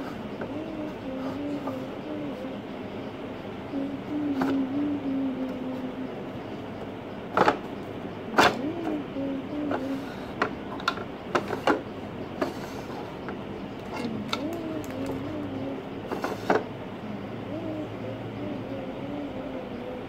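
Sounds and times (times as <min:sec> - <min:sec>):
low wavering voice: 0:00.0 - 0:06.8, 0:08.2 - 0:10.5, 0:13.8 - 0:20.0
low steady hum: 0:00.0 - 0:20.0.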